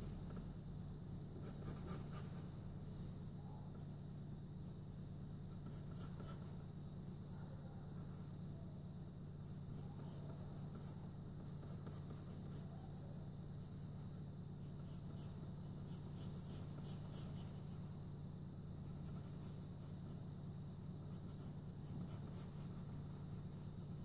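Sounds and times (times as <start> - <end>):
low electrical hum: 0.0 - 24.0
pencil scratching on paper: 1.3 - 3.1, 5.5 - 6.6, 9.4 - 12.8, 13.6 - 17.8, 18.7 - 24.0.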